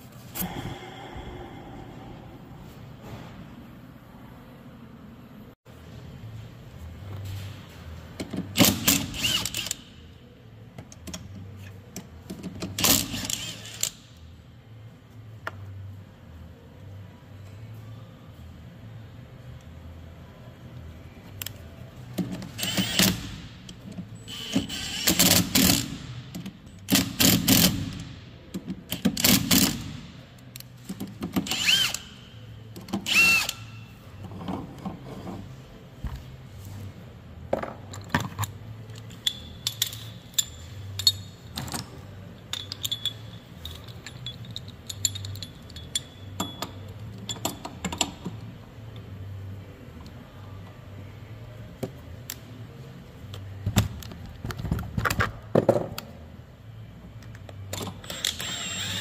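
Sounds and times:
metal clicks and clinks: 42.5 - 48.1.

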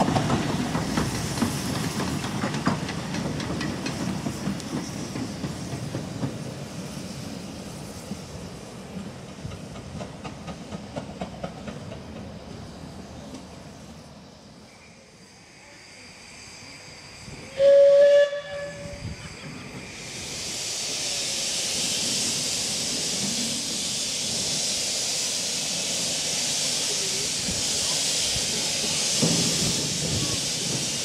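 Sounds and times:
steam hissing: 0.0 - 31.0
steam locomotive whistle toot: 14.6 - 19.6.

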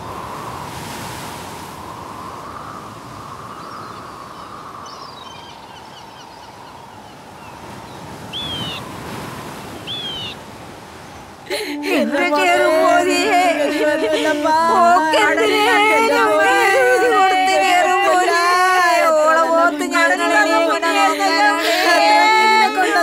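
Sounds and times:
ocean surf breaking on beach: 0.0 - 5.2, 6.5 - 23.0
bird calling: 7.4 - 10.4
faint high chirps: 8.3 - 9.0, 9.9 - 10.4.

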